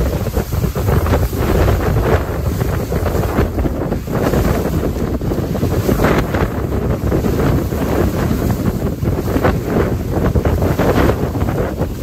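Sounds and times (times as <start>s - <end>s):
water rushing and splashing: 0.0s - 12.0s
wind buffeting microphone: 0.0s - 12.0s.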